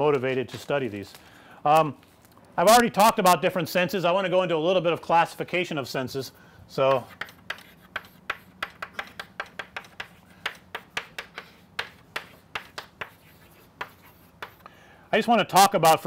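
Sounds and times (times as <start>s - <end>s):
chalk tapping and scratching: 6.8s - 14.7s.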